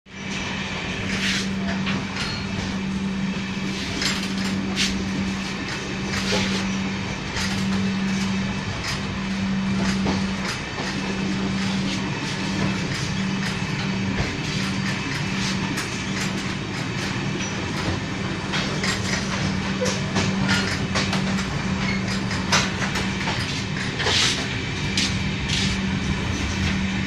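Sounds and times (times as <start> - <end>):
train coach rumble: 0.1 - 27.0.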